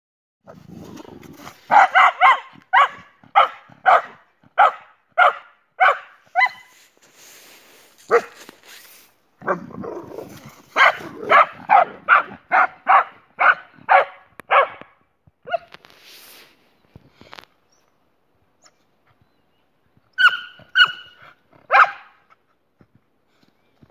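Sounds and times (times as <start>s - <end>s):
dog barking: 1.7s - 6.7s, 8.1s - 8.4s, 10.8s - 15.8s, 20.2s - 21.1s, 21.7s - 22.2s.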